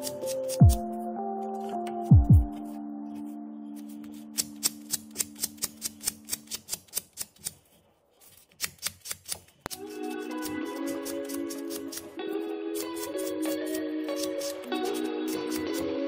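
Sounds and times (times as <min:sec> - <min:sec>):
music: 0:00.0 - 0:06.7, 0:09.7 - 0:16.0
hand-sanding with abrasive paper: 0:12.8 - 0:15.9.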